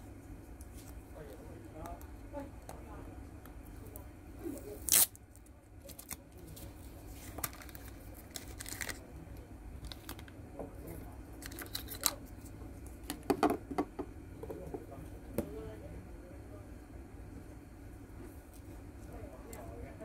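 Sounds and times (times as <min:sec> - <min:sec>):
plastic bag crinkling: 0:05.9 - 0:09.0.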